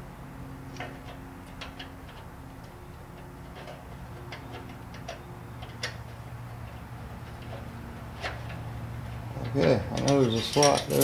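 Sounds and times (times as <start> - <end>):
steady low hum: 0.0 - 11.0
metal tools clinking: 9.4 - 11.0.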